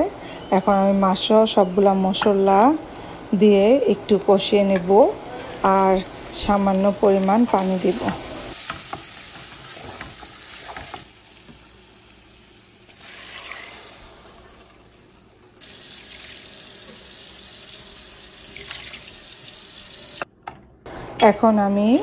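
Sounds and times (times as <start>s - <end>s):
shrimp sizzling in hot oil: 5.0s - 20.2s.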